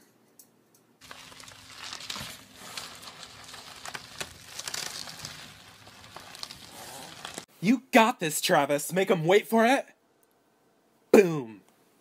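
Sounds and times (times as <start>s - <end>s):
bubble wrap crinkling and rustling: 1.0s - 7.5s
sharp crackles: 1.0s - 7.5s.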